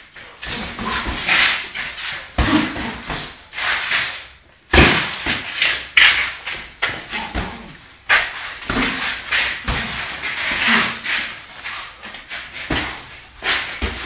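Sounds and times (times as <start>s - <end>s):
boxing glove punch thuds: 4.7s - 5.6s.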